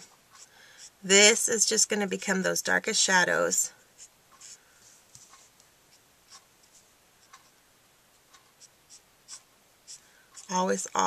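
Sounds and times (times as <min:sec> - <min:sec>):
marker scratching on card: 0:04.0 - 0:04.6, 0:05.2 - 0:07.5, 0:08.3 - 0:10.6.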